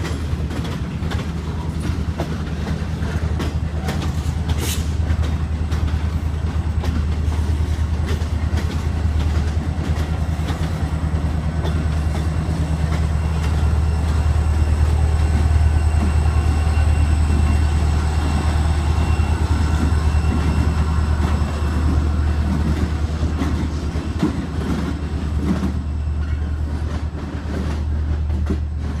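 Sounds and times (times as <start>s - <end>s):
diesel locomotive engines droning: 0.0s - 29.0s
wheels clicking over rail joints: 0.0s - 29.0s.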